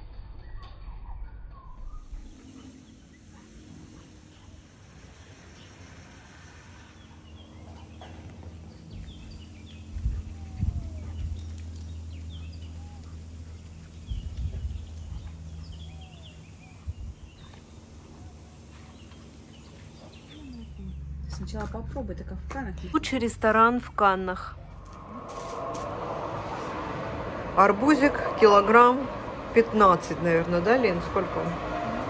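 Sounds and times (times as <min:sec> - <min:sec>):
steady low hum: 0:00.0 - 0:32.0
small birds chirping: 0:00.6 - 0:21.9.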